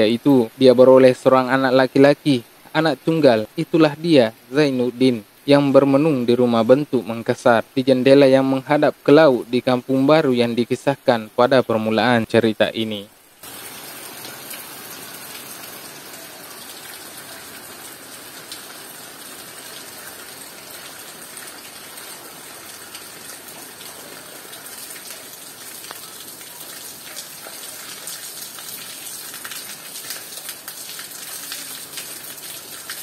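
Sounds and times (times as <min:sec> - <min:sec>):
rain pattering on leaves: 0:12.3 - 0:33.0
water dripping off foliage: 0:12.3 - 0:33.0.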